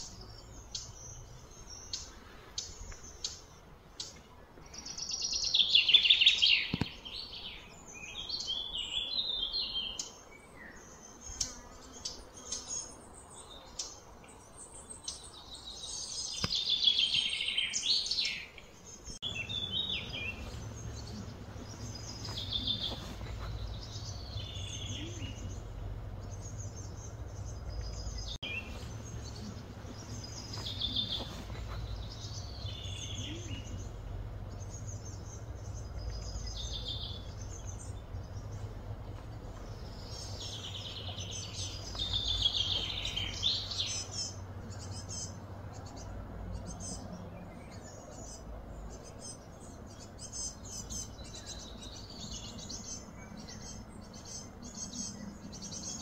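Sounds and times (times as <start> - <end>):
birds chirping: 0.0 - 56.0
low background rumble: 18.8 - 56.0.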